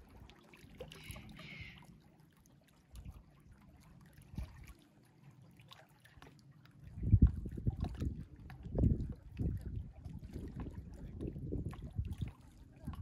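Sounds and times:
sea water lapping and trickling: 0.0s - 13.0s.

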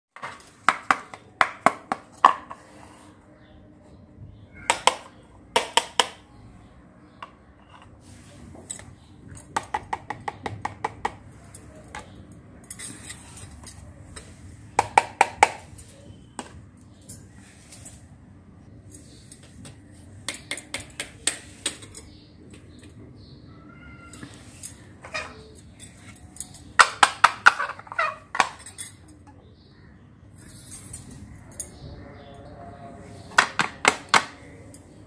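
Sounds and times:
plastic toys clattering on tiled floor: 0.2s - 2.7s, 24.0s - 29.3s, 33.2s - 34.9s.

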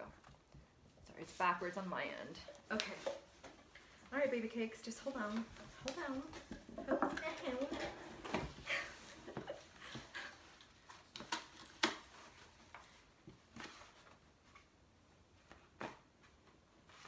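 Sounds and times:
paper rustling and crinkling: 10.4s - 14.8s.

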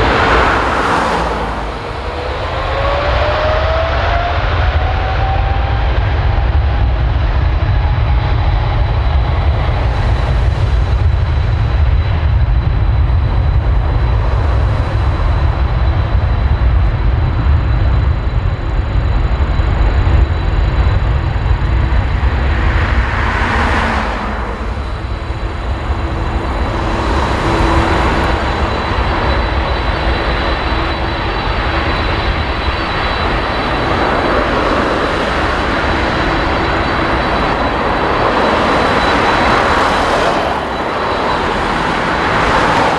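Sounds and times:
jet engines rumbling and whining: 0.0s - 42.9s.

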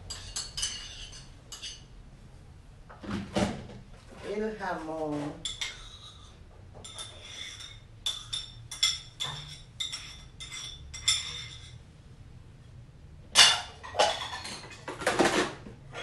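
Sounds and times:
metal spoon clinking on ceramic bowl: 0.1s - 1.8s, 5.4s - 11.8s.

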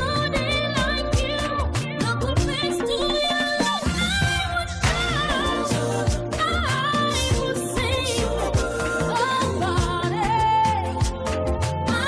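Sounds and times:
person singing: 0.0s - 12.0s
drum beat: 3.7s - 10.0s.

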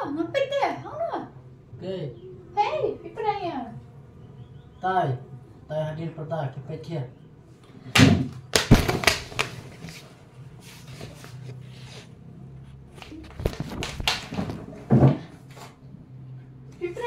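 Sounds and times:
plastic chair knocking: 8.0s - 9.6s, 13.4s - 15.3s
person shuffling: 9.3s - 15.8s.

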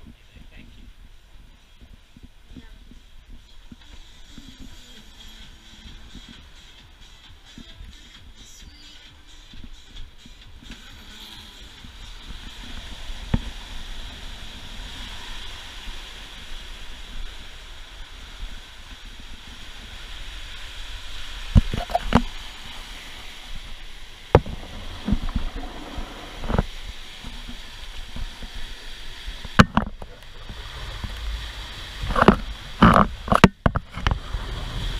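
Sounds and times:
rushing water from boat wake: 0.0s - 34.9s
sharp thumps of hull: 24.4s - 27.6s.

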